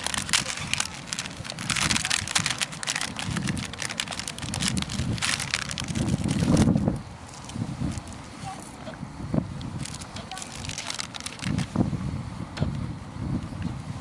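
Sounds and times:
plastic packet crinkling: 0.0 - 8.2, 9.8 - 11.7
wind buffeting microphone: 0.0 - 14.0.

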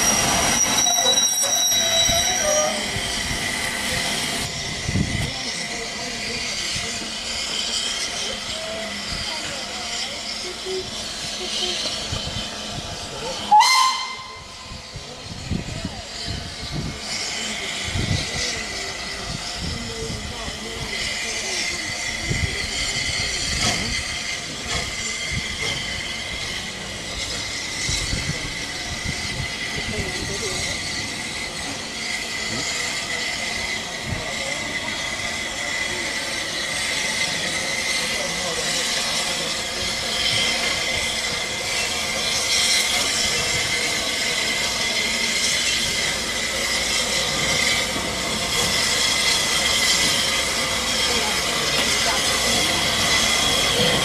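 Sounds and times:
steam locomotive hissing: 0.0 - 54.0.

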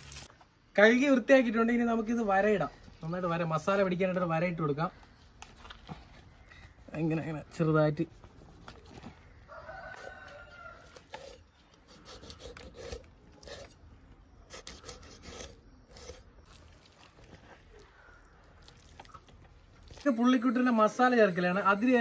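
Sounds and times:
rooster crowing: 9.3 - 11.4
knife cutting fish skin: 10.9 - 13.8, 14.5 - 16.3.

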